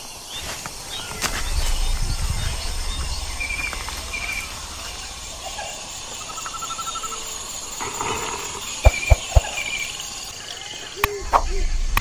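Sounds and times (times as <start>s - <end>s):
bird chirps and trill: 0.2s - 12.0s
high insect buzzing: 0.7s - 10.4s
low rumble: 1.0s - 8.9s, 11.2s - 12.0s.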